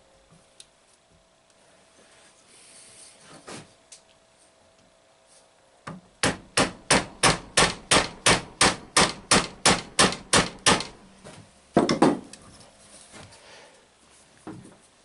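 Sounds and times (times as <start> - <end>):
hammer tapping metal: 6.2 - 11.0.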